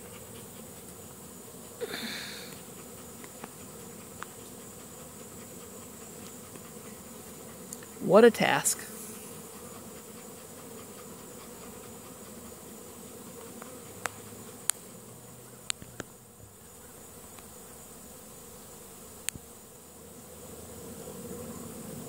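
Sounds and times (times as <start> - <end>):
bees buzzing: 0.0 - 22.0.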